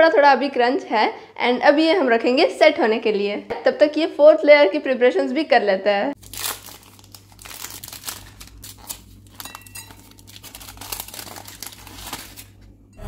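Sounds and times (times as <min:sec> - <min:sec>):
wrappers crinkling: 0:06.2 - 0:12.6.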